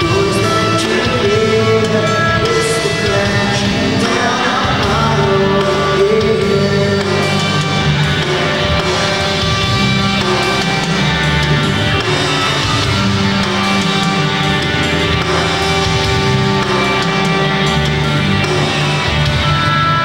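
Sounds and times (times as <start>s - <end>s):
man singing: 0.0s - 9.7s
bass guitar: 0.0s - 20.0s
distorted electric guitars: 0.0s - 20.0s
drums: 0.0s - 20.0s.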